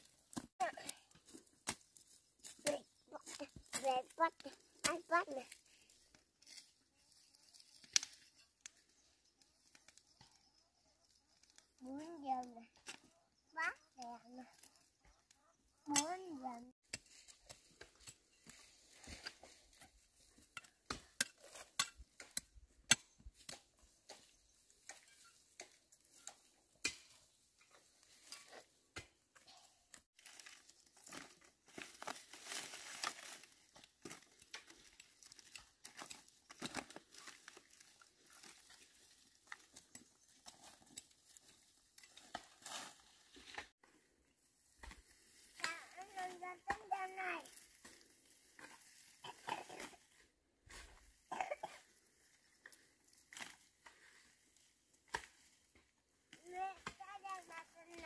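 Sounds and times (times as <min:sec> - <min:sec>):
dry grass crackling and snapping: 0:00.0 - 0:10.2, 0:16.8 - 0:22.2, 0:30.0 - 0:43.7, 0:44.5 - 0:50.1, 0:52.0 - 0:58.0.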